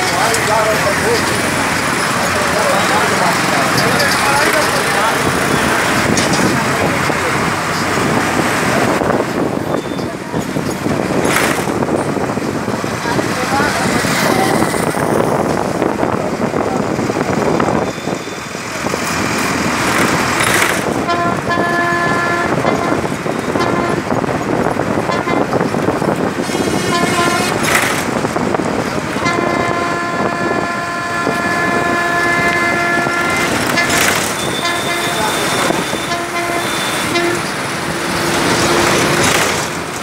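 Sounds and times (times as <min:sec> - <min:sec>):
road and wind noise: 0:00.0 - 0:40.0
vehicle horn honking: 0:21.1 - 0:24.1, 0:25.1 - 0:25.5, 0:26.5 - 0:27.8, 0:29.2 - 0:37.5.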